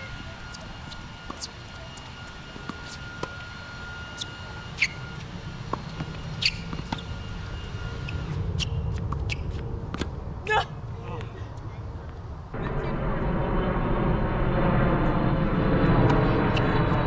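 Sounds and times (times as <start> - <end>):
tennis ball struck by rackets: 5.7 - 7.1
low rumble: 11.7 - 17.0.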